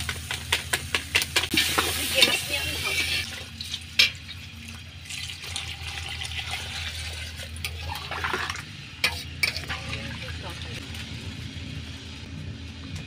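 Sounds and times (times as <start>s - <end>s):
water pouring into metal pot: 3.3s - 8.6s.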